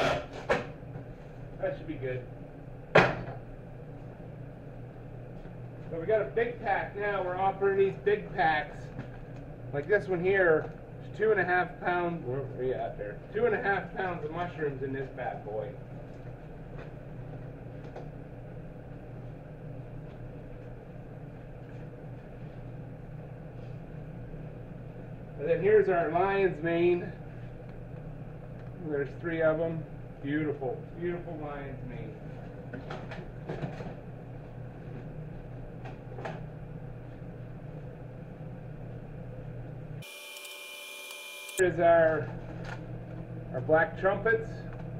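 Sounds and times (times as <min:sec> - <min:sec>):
low machinery hum: 0:00.0 - 0:44.9.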